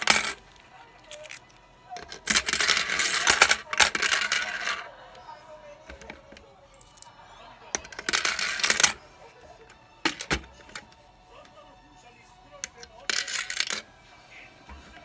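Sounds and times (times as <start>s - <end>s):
coins clattering in plastic bank: 0.0s - 0.4s, 1.0s - 4.9s, 7.7s - 9.0s, 10.0s - 11.0s, 12.6s - 13.9s.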